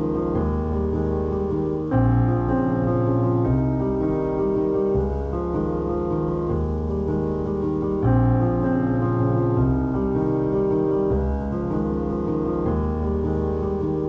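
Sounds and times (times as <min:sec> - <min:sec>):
background music with sustained chords: 0:00.0 - 0:14.0.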